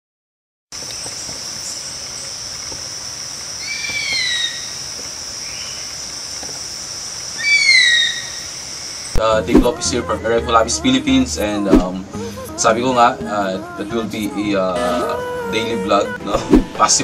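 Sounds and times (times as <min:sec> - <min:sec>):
high insect drone: 0:00.8 - 0:09.2
falling whistled bird calls: 0:03.6 - 0:05.9, 0:07.4 - 0:09.2.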